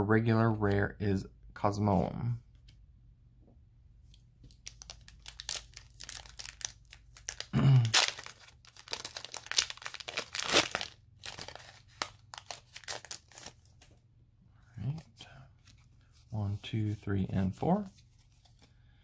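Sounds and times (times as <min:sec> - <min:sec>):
foil wrapper tearing and crinkling: 0:04.6 - 0:13.6.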